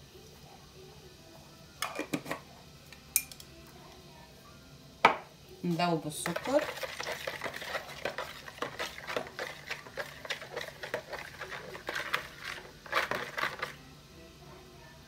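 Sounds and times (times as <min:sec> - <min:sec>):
spoon stirring in plastic bowl: 0:06.2 - 0:13.8.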